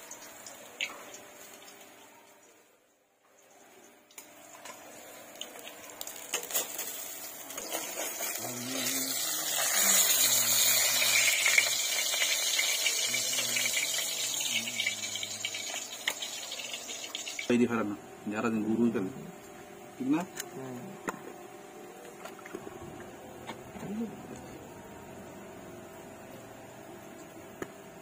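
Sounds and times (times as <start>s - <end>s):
hot oil sizzling and crackling: 0.0s - 2.0s, 4.1s - 17.7s.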